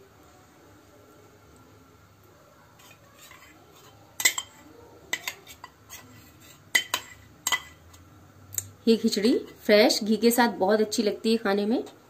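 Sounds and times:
spoon clinking against metal bowl: 0:02.8 - 0:06.0, 0:06.7 - 0:08.0.

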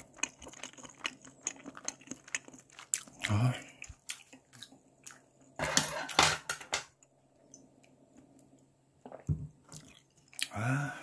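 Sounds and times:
utensils clinking on tableware: 0:05.6 - 0:06.9.

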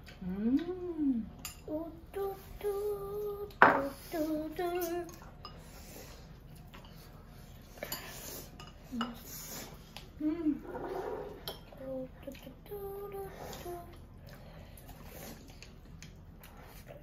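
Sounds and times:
person singing wordless tune: 0:00.4 - 0:05.2, 0:11.8 - 0:14.0
chopsticks and bowls clinking: 0:06.6 - 0:09.3.

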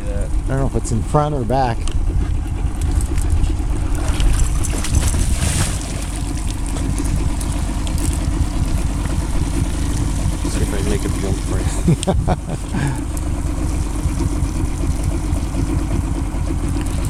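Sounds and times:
outboard motor idling: 0:00.0 - 0:17.0
wind on microphone: 0:01.8 - 0:11.1
fish splashing at surface: 0:04.0 - 0:11.2.

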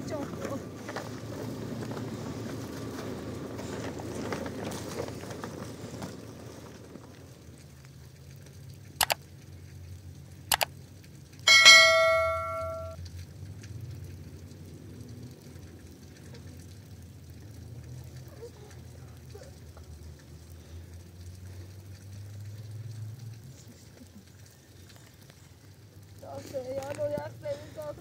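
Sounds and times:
bell ding: 0:11.5 - 0:13.0.

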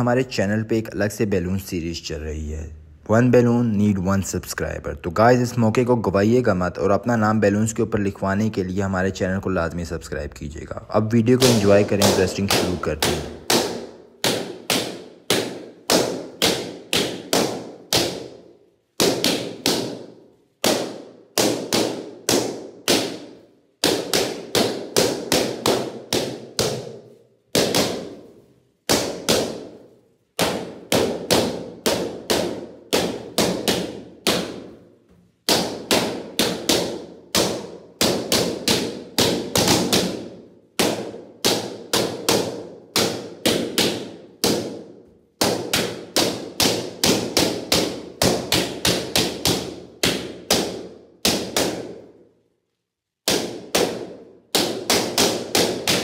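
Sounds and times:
balloons popping: 0:11.2 - 0:56.0.

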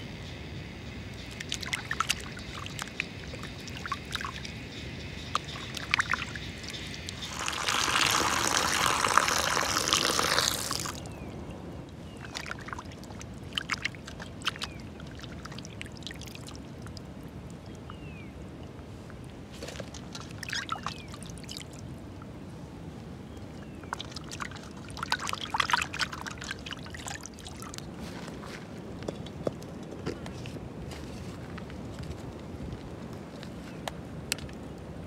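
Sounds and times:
liquid pouring: 0:05.4 - 0:11.1.

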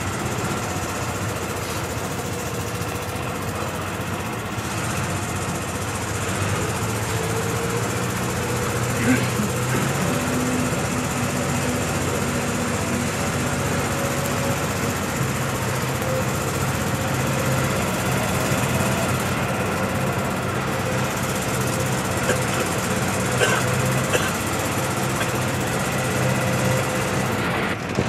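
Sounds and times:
machine humming: 0:00.0 - 0:28.0.

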